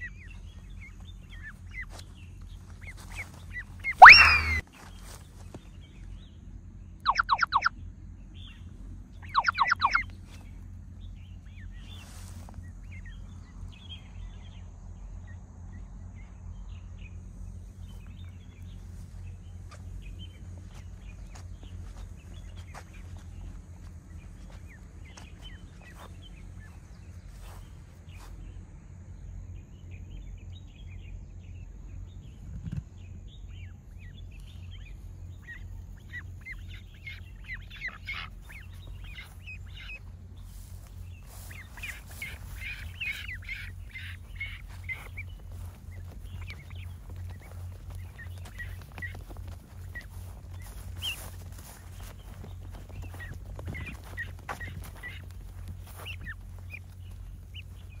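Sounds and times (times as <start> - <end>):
ducks and ducklings peeping and quacking: 0.0 - 4.6, 7.1 - 7.7, 9.2 - 13.2, 33.4 - 58.0
steady low rumble: 0.0 - 58.0.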